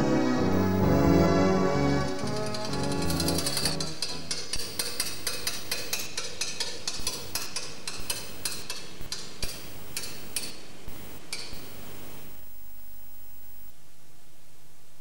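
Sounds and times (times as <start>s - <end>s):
steady low hiss: 0.0s - 15.0s
sharp irregular clicks: 2.1s - 11.7s.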